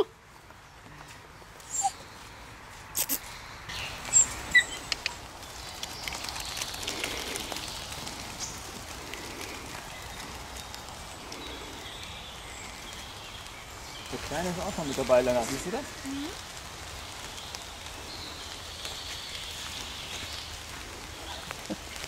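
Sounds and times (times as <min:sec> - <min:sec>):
faint steady hiss: 0:00.0 - 0:22.0
bird chirps: 0:03.0 - 0:07.8.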